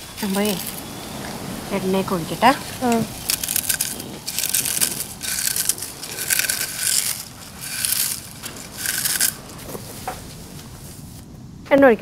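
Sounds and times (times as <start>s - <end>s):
potato chips crunching: 3.2s - 9.5s.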